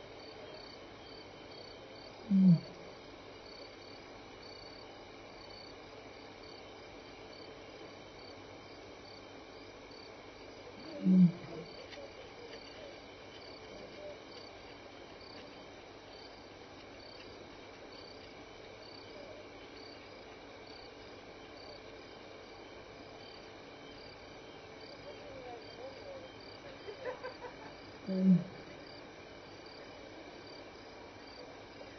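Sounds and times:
crickets chirping: 0.0 - 31.9
insects trilling hiss: 0.0 - 31.9
faint wavering animal call: 2.2 - 2.8, 10.8 - 11.8, 28.0 - 28.7.

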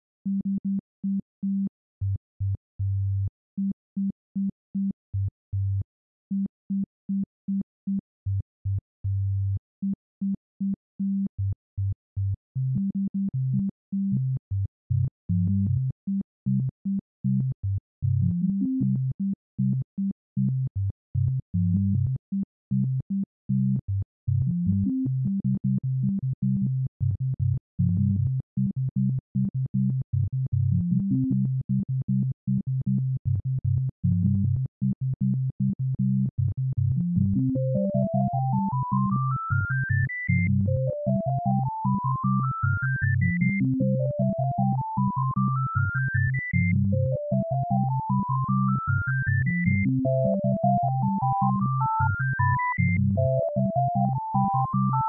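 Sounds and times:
bouncy electronic synth music: 37.2 - 55.0.

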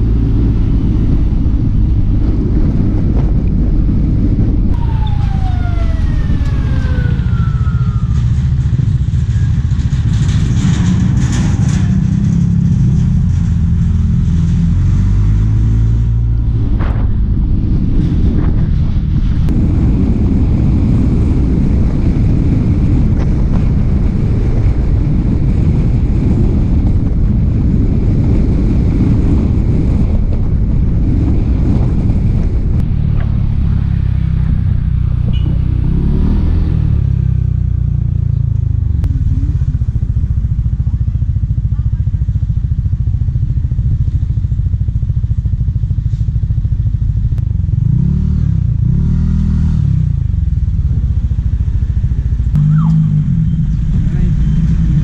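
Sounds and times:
rushing wind noise: 0.0 - 55.0
motor scooter engine running: 38.6 - 47.7.

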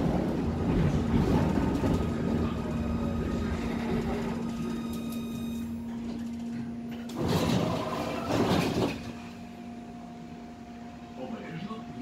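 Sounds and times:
tram doors opening rattling: 0.0 - 9.4
tram running hum: 0.0 - 12.0.

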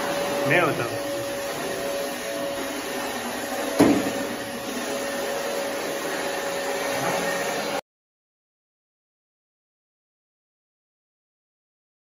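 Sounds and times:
floor scrubber motor whine: 0.0 - 7.8
sharp knock: 3.8 - 4.1.

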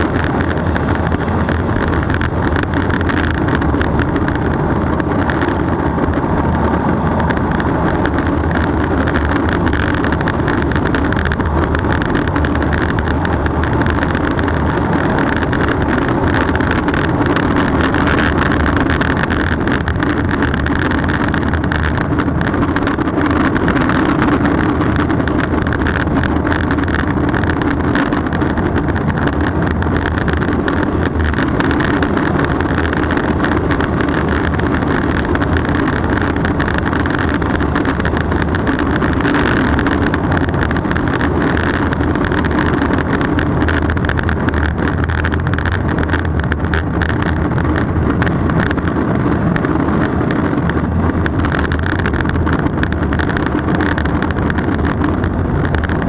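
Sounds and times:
rushing wind: 0.0 - 56.0
wheels rolling on asphalt: 0.0 - 56.0.

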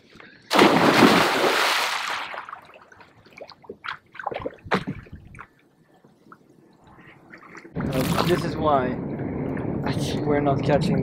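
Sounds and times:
big splash into water: 0.5 - 2.7
small water splashes: 0.5 - 5.7.

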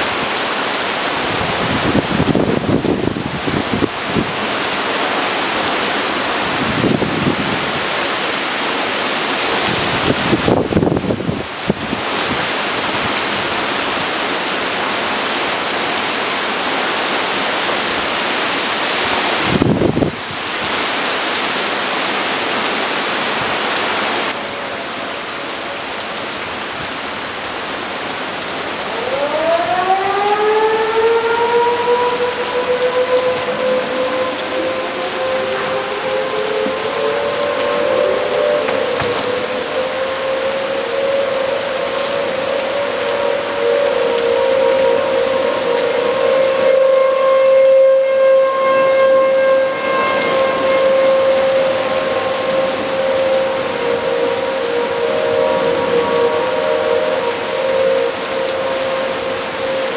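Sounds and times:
wind gusting on microphone: 0.0 - 15.5, 16.1 - 24.4
heavy rain pouring: 0.0 - 59.9
tornado warning siren wailing: 0.0 - 59.9.

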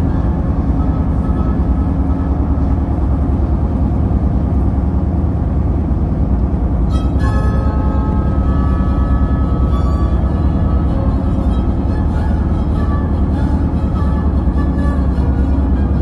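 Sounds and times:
faint sustained musical tones: 0.0 - 3.9, 6.8 - 16.0
car road rumble: 0.0 - 16.0.

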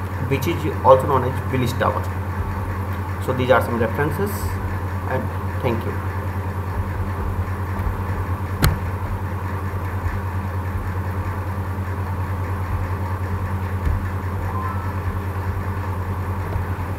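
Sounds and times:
steady low hum: 0.0 - 16.9
sharp click: 8.6 - 8.9.

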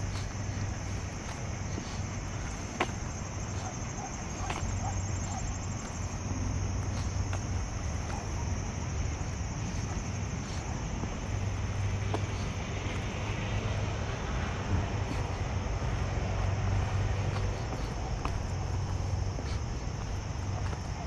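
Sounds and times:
distant traffic rumble: 0.0 - 21.0
faint footstep taps: 2.8 - 3.0.

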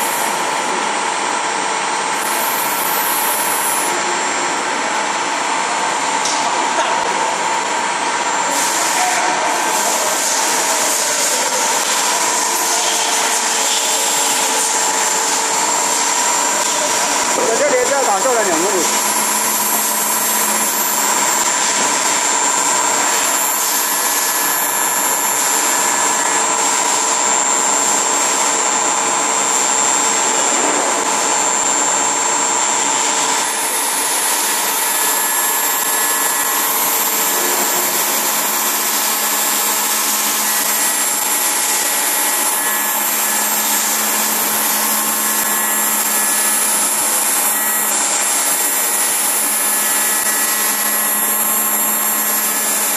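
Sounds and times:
milling machine spindle whine: 0.0 - 52.9
machine hiss: 2.2 - 3.9.

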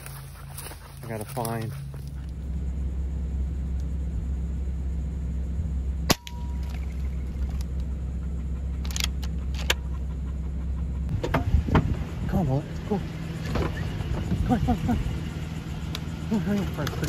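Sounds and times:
low rumble: 0.0 - 17.0
sharp crack: 6.1 - 6.9.

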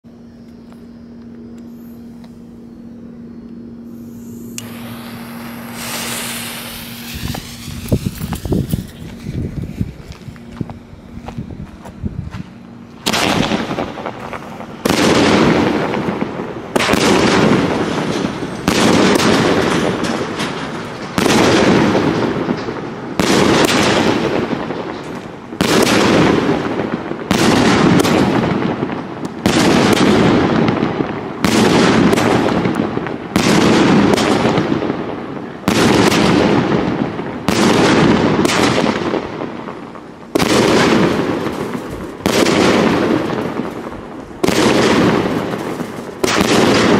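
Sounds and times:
firework cake shots: 4.4 - 9.5.

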